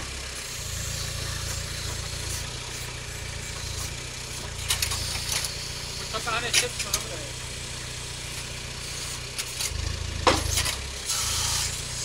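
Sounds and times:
backhoe digging soil: 0.0s - 12.0s
garden tractor engine running: 0.0s - 12.0s
sharp knocks: 10.2s - 10.6s.

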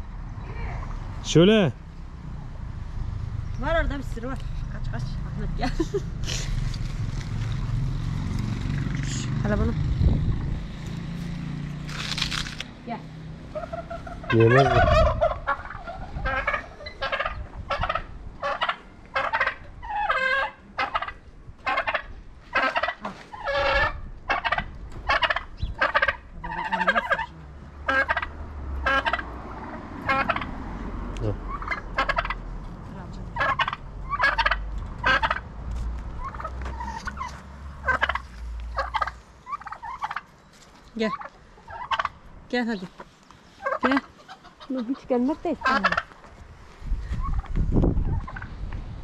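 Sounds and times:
poultry calling: 13.4s - 29.4s, 30.0s - 30.6s, 31.4s - 32.6s, 33.3s - 35.5s, 36.2s - 40.3s, 41.0s - 46.2s.

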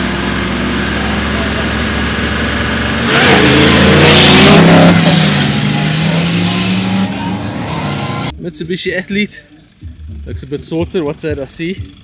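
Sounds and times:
diesel engines accelerating: 0.0s - 12.0s.

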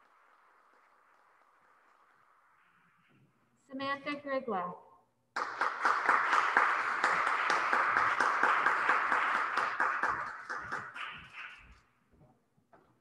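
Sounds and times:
audience applauding: 5.4s - 11.8s.

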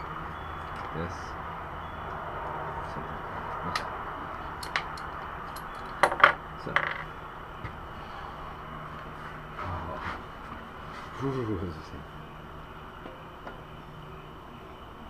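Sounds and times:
steady low hum: 0.0s - 15.0s
metal tools clinking: 3.6s - 7.1s.

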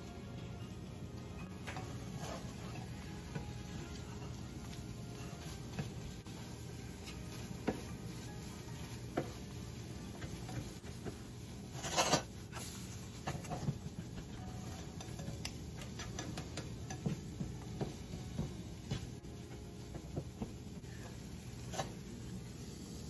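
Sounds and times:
spatula scraping a frying pan: 1.7s - 3.6s, 5.1s - 17.1s, 20.9s - 22.1s.

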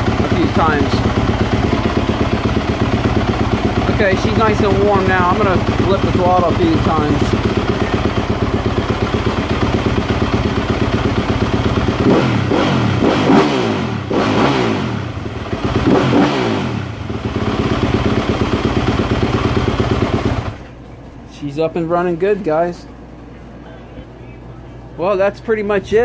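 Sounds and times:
motorcycle engine idling and revving: 0.0s - 20.8s.

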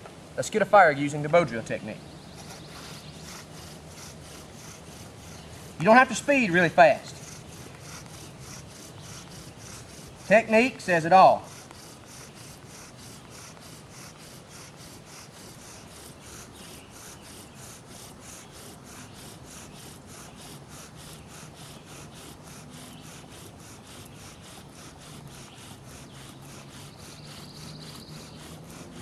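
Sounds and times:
bow drill wooden rasping: 1.2s - 29.0s.

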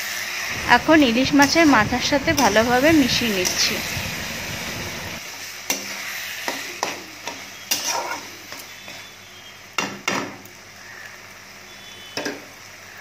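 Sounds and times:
low sizzle: 0.0s - 13.0s
metal spatula scraping pan: 7.7s - 8.3s.

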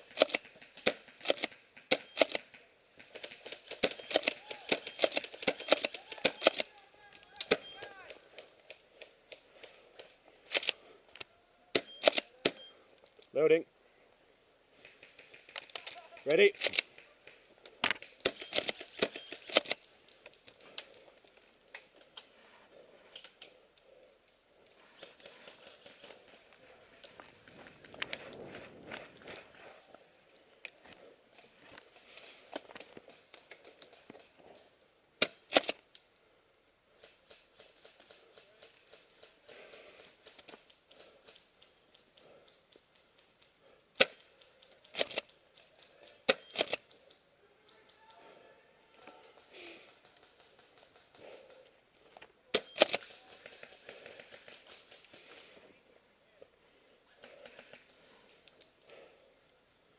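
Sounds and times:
sharp cracks: 0.0s - 12.6s, 14.7s - 22.3s, 35.2s - 36.1s, 37.0s - 47.2s
rustling: 0.0s - 59.9s
faint rustling: 12.2s - 34.9s
light scattered ticks: 14.1s - 55.8s, 56.4s - 59.8s
small ticks: 37.0s - 48.2s, 57.1s - 59.6s.

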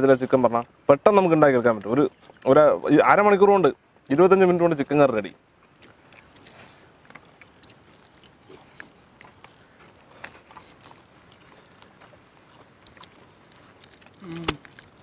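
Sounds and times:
hands mixing food: 0.0s - 15.0s
chewing: 1.4s - 2.9s, 5.4s - 15.0s
tearing fried chicken: 12.9s - 15.0s.

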